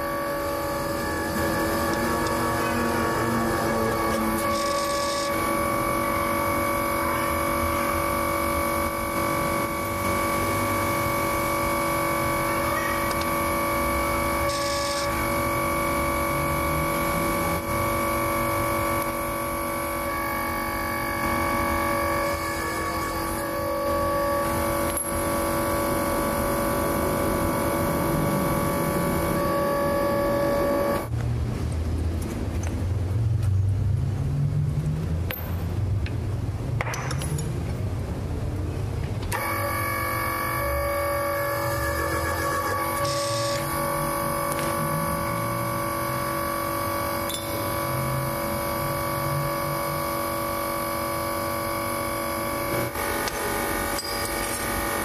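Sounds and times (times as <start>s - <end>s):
press motor whine: 0.0s - 31.2s, 39.2s - 55.0s.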